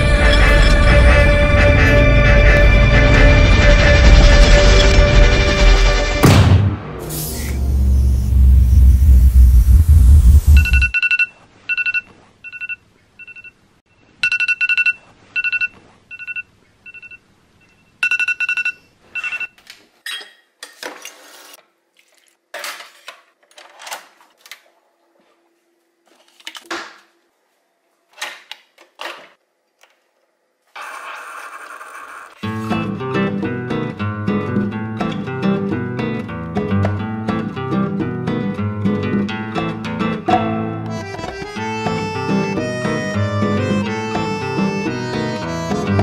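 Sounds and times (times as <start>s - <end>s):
kitchen sounds: 18.7s - 24.6s.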